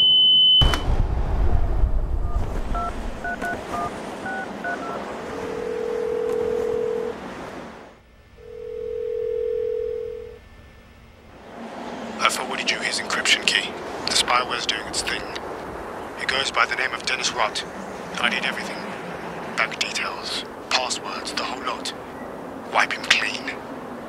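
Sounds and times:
high steady dial tone: 2.3 - 7.2, 8.4 - 10.4
telephone ringing tones: 2.3 - 7.2, 8.4 - 10.4
touch-tone keypad beeps: 2.8 - 7.1.

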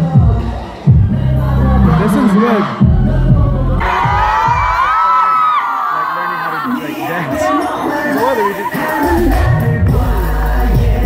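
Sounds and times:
bass-heavy dance track: 0.0 - 4.9, 7.4 - 11.0
crowd screaming: 3.8 - 9.4.

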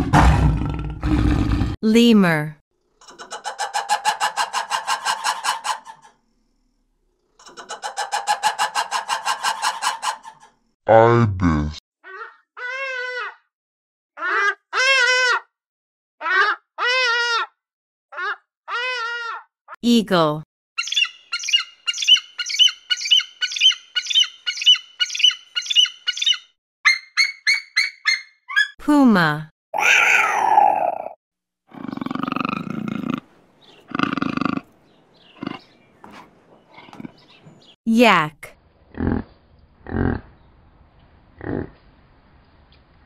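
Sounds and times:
lemur pulsed calls: 20.8 - 28.7.

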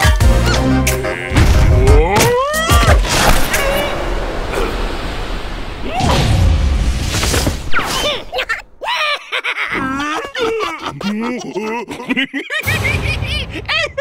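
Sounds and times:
cartoon character vocalizations: 1.0 - 3.9
noisy rush: 3.1 - 7.7.

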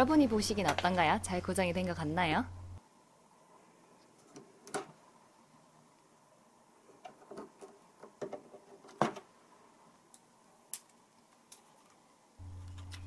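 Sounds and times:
steady low hum: 0.0 - 4.1, 12.2 - 13.0.

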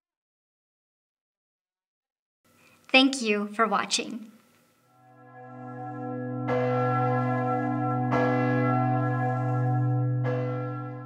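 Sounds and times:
large church bell tolling: 5.0 - 11.0
deep steady hum: 5.2 - 11.0.

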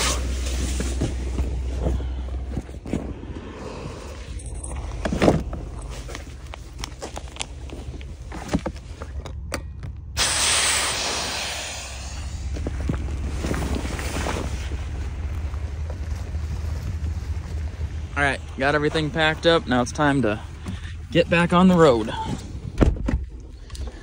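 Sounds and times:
air hissing from valve: 10.2 - 12.6.

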